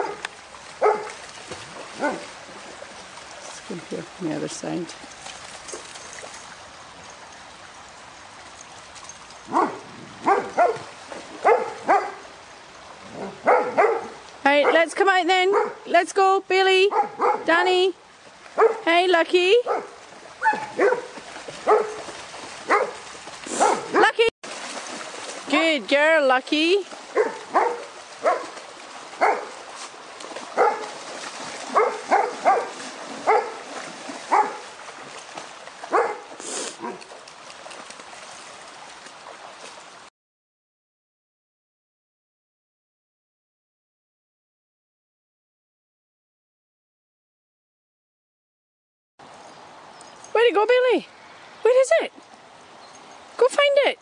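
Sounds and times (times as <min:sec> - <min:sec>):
dog barking: 0:00.0 - 0:00.2, 0:00.8 - 0:01.1, 0:02.0 - 0:02.3, 0:09.5 - 0:12.2, 0:13.2 - 0:14.9, 0:15.5 - 0:15.9, 0:16.9 - 0:17.5, 0:18.6 - 0:18.9, 0:19.6 - 0:22.0, 0:22.7 - 0:24.2, 0:27.1 - 0:28.5, 0:29.2 - 0:29.6, 0:30.6 - 0:30.9, 0:31.7 - 0:33.6, 0:34.3 - 0:34.6, 0:35.9 - 0:37.0
shallow stream running: 0:00.0 - 0:40.1, 0:49.2 - 0:54.0.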